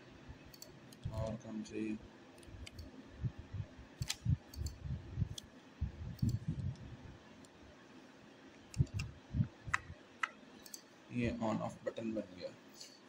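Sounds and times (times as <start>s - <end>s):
computer mouse clicks: 0.5s - 1.4s, 2.4s - 2.9s, 4.0s - 5.5s, 6.1s - 7.6s, 8.7s - 9.1s, 9.7s - 10.9s.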